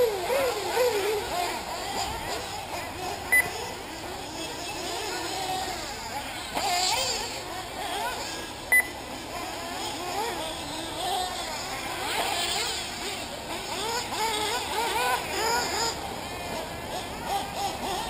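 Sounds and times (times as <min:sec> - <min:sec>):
nitro buggy engines revving: 0:00.0 - 0:18.0
short electronic beep: 0:08.7 - 0:08.9.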